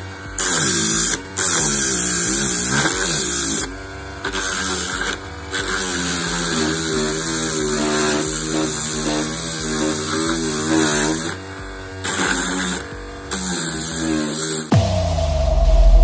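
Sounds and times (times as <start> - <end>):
song with sung melody and bass: 14.7 - 16.0.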